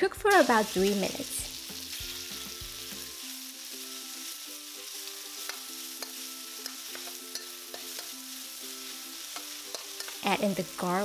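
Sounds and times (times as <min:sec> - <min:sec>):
chicken sizzling in hot oil: 0:00.0 - 0:11.0
metal spatula scraping a wok: 0:03.9 - 0:10.4.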